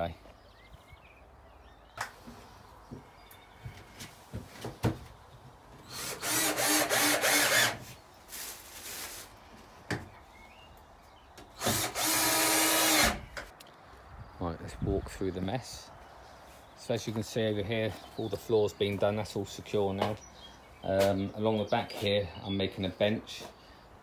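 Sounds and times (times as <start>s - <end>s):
knocks and clicks of handling boards: 4.3s - 5.2s
cordless drill driving screws: 5.9s - 7.8s, 11.6s - 13.4s.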